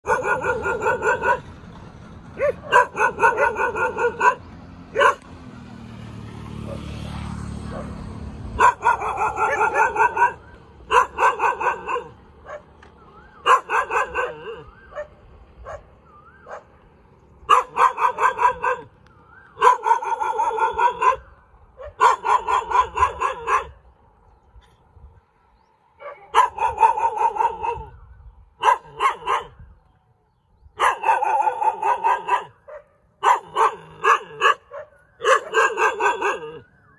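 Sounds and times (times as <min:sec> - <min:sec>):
dog barking: 0:00.0 - 0:01.5, 0:02.4 - 0:05.4, 0:08.6 - 0:12.7, 0:13.4 - 0:16.7, 0:17.5 - 0:19.0, 0:19.6 - 0:23.8, 0:26.0 - 0:28.0, 0:28.6 - 0:29.7, 0:30.8 - 0:36.6.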